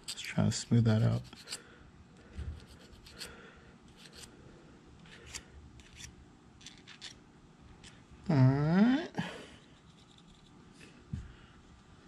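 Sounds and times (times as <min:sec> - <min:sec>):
hand file scraping steel: 0:02.7 - 0:03.3.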